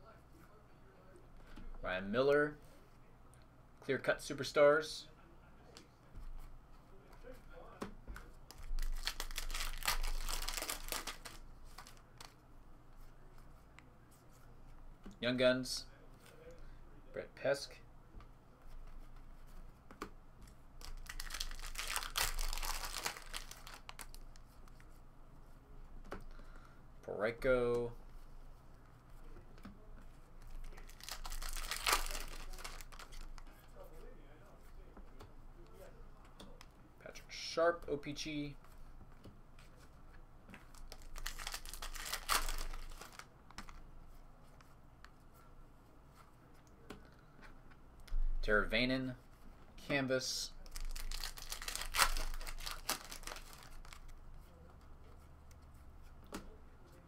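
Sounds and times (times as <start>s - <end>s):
cards being handled: 7.1s - 14.5s, 18.6s - 25.0s, 28.8s - 34.0s, 38.6s - 45.4s, 50.6s - 57.0s
foil wrapper crinkling: 8.5s - 12.2s, 20.8s - 24.4s, 30.6s - 33.4s, 40.7s - 43.3s, 50.7s - 54.1s.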